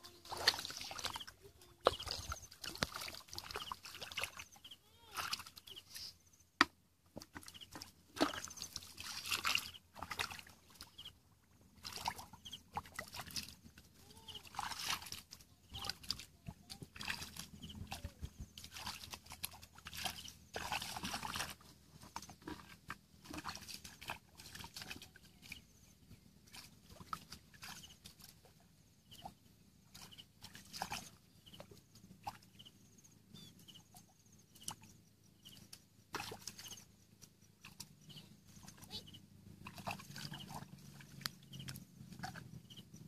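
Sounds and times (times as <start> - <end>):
mud squelching: 0.0 - 32.7, 33.3 - 43.0
hands splashing in muddy water: 0.2 - 6.0, 7.3 - 10.8, 14.3 - 25.7, 35.6 - 36.8, 39.6 - 42.5.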